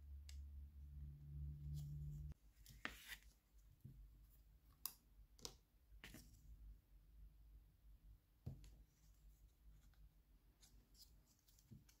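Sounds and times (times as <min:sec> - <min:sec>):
low hum: 0:00.0 - 0:02.4.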